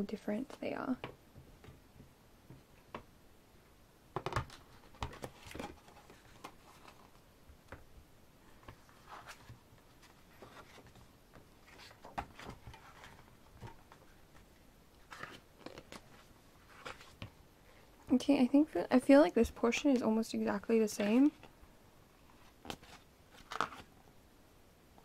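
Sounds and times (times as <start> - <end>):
paper pages rustling: 4.2 - 7.2, 8.5 - 17.4, 22.3 - 23.9.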